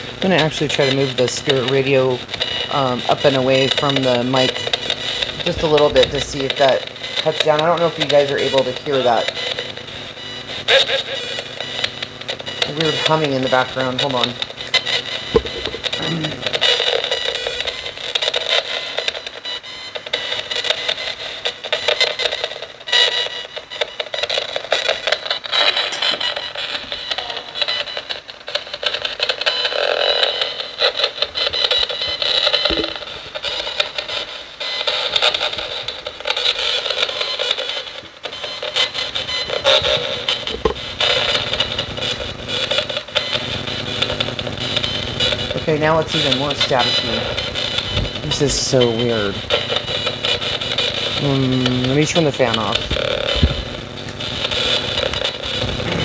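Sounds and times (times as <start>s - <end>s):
bursts of radio static: 0.0s - 56.0s
clipped broadcast fragments: 23.8s - 56.0s.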